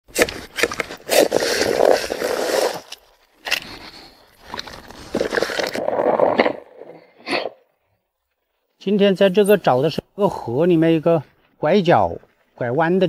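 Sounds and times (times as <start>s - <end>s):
corn kernels scraped off cobs: 0.1s - 7.6s.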